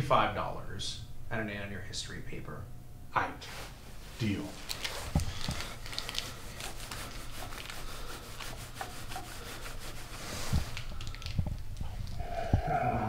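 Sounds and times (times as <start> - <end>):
cheese grated on metal grater: 4.8 - 10.9.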